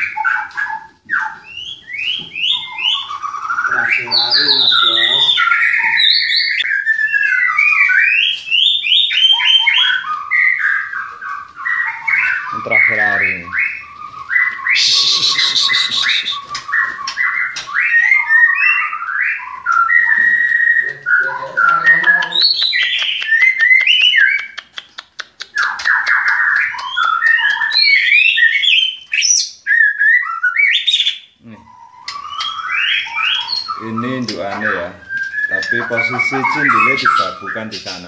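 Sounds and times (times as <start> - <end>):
bird singing whistled phrases: 0.0 - 24.6, 25.4 - 38.0
rapid clicking bird notes: 14.4 - 18.0, 21.0 - 29.4, 31.9 - 38.0.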